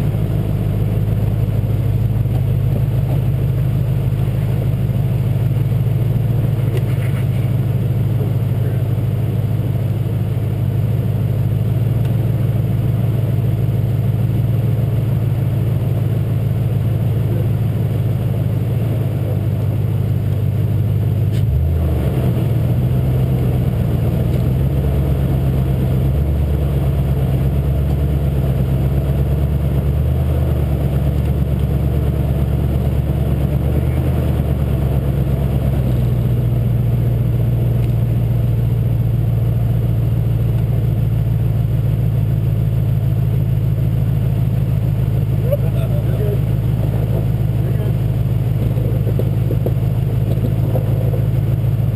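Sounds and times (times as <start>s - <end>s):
truck engine running: 0.0s - 51.9s.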